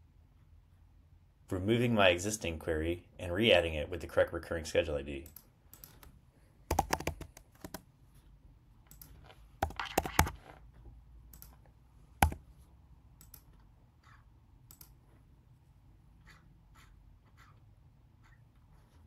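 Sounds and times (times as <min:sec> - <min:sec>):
keyboard keystroke clicks: 0:12.2 - 0:12.4.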